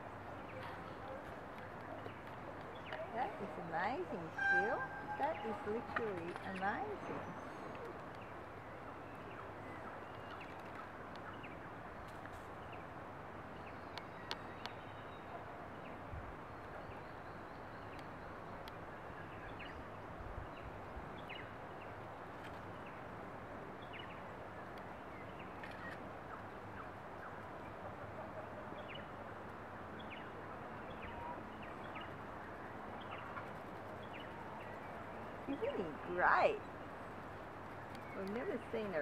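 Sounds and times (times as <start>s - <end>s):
outdoor background noise: 0.0s - 39.0s
small birds chirping: 30.0s - 39.0s.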